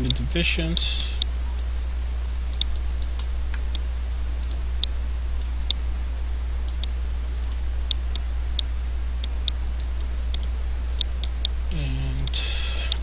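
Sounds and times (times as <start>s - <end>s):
low hum: 0.0s - 13.0s
computer mouse clicks: 6.7s - 11.6s.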